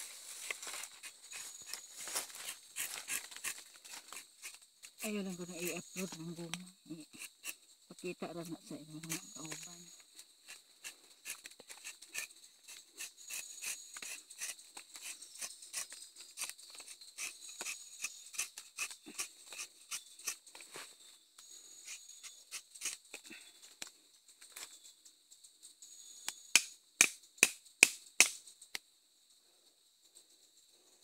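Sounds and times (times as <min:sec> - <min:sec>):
high insect buzz: 0:00.0 - 0:23.8
knife scraping tree bark: 0:00.3 - 0:04.6, 0:07.1 - 0:07.6, 0:10.4 - 0:20.6, 0:21.8 - 0:23.1.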